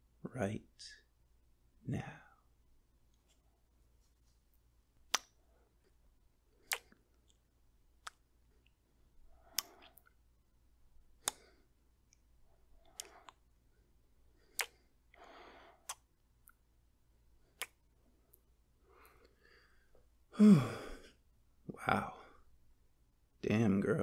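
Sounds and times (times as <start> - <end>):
soft breaths: 5.3 - 22.7
man's lips kissing: 6.6 - 7.0, 14.5 - 14.8, 15.8 - 16.0.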